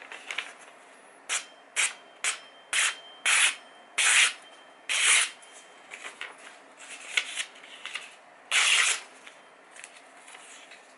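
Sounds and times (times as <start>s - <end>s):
paper rustling: 5.9s - 10.9s.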